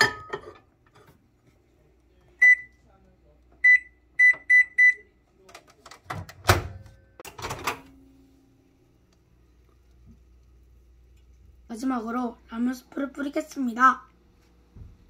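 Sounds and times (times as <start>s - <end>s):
ceramic bowl clinking: 0.0s - 0.6s
microwave door shutting: 6.0s - 8.0s
microwave oven humming: 6.2s - 15.0s.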